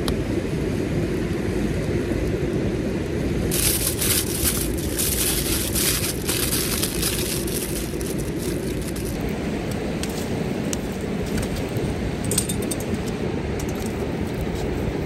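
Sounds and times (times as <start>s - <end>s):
low rumble: 1.9s - 15.0s
aluminium foil crinkling: 3.5s - 9.3s.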